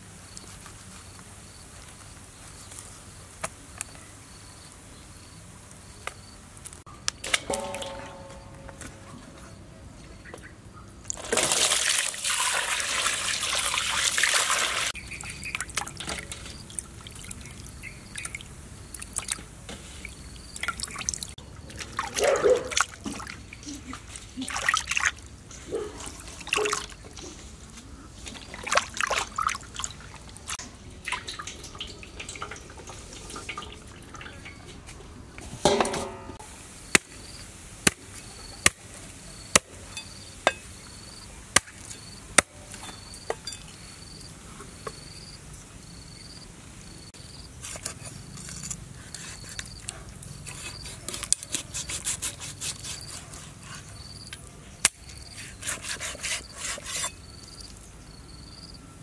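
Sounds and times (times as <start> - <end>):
water splashing and sloshing: 7.2 - 37.1
water pouring into steel basin: 11.1 - 14.9, 31.0 - 34.6.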